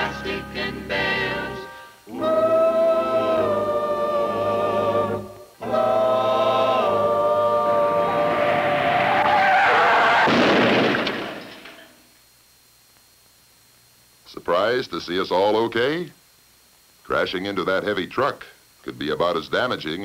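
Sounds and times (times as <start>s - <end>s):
choir singing held chords: 0.0s - 10.4s.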